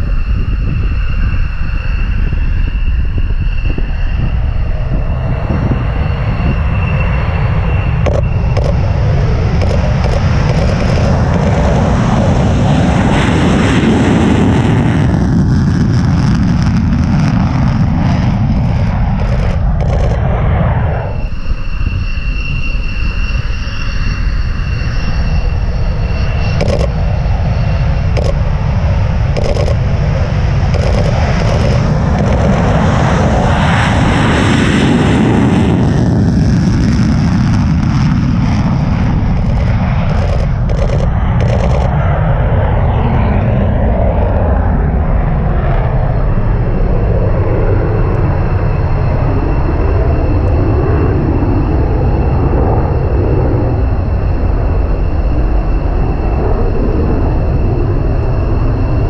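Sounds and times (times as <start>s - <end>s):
jet engine rumble: 0.0s - 59.0s
thin steady lens whine: 7.8s - 11.7s, 18.6s - 20.3s, 21.0s - 33.4s, 39.0s - 42.1s
camera shutter clicks: 26.6s - 26.9s, 29.4s - 29.8s, 39.4s - 41.9s.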